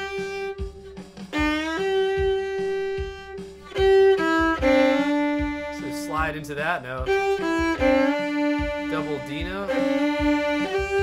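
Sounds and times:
solo fiddle melody: 0:00.0 - 0:11.0.

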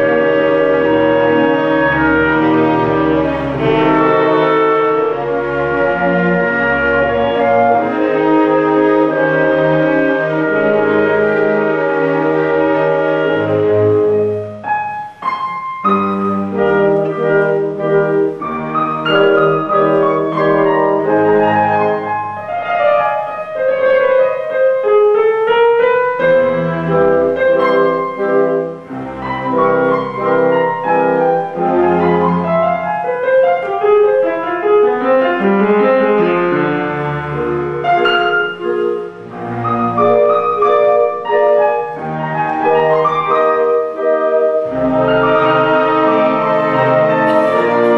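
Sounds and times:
piano and woodwind music: 0:00.0 - 0:47.9.

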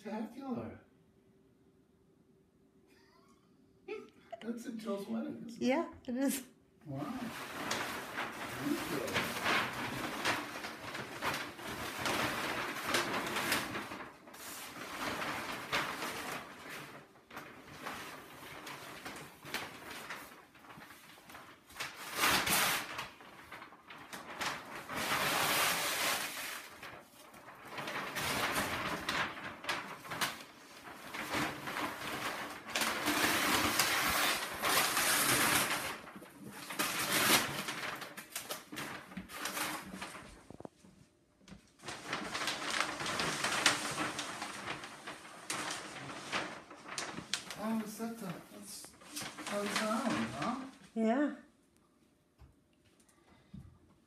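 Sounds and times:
wrapping paper rustling and crumpling: 0:06.9 - 0:51.2.

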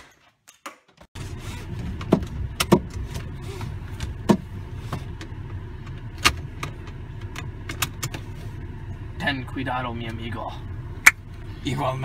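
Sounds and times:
car engine idling: 0:01.2 - 0:12.0.

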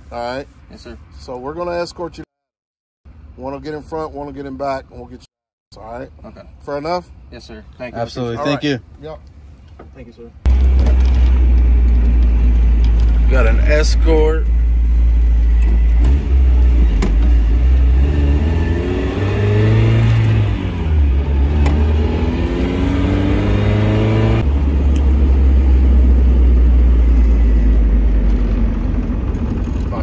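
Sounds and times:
low road rumble: 0:03.1 - 0:30.0
car engine accelerating: 0:10.5 - 0:30.0.

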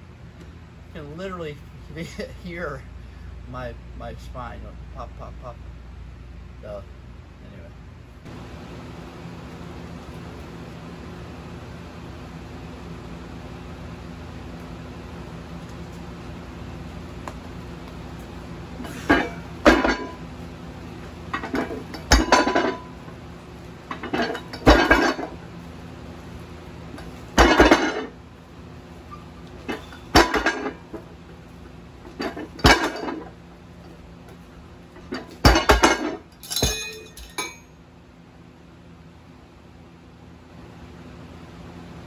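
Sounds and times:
weight plates and chain clanking: 0:18.8 - 0:20.2, 0:21.3 - 0:23.0, 0:23.9 - 0:25.4, 0:27.0 - 0:28.2, 0:29.1 - 0:31.1, 0:32.1 - 0:33.4, 0:35.0 - 0:37.8.

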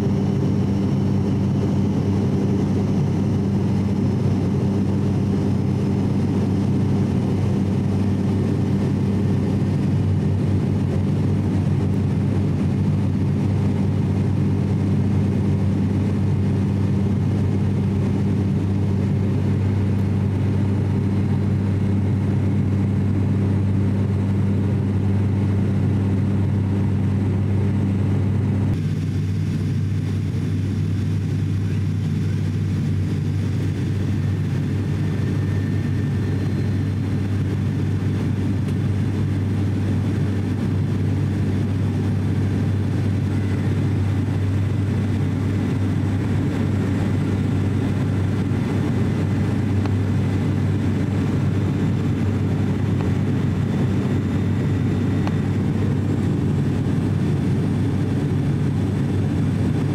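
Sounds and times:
low propeller drone: 0:00.0 - 0:59.9.

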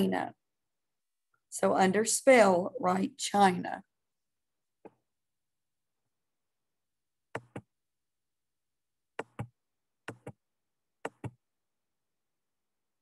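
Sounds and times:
computer mouse clicking: 0:07.3 - 0:07.7, 0:09.2 - 0:10.4, 0:11.0 - 0:11.4.

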